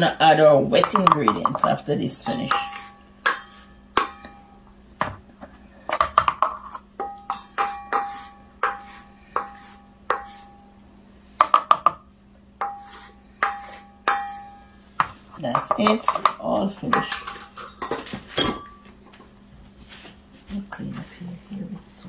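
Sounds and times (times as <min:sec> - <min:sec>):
beater clinking on metal bowl: 0:00.8 - 0:04.5, 0:06.5 - 0:10.6, 0:12.6 - 0:14.6, 0:15.4 - 0:18.9.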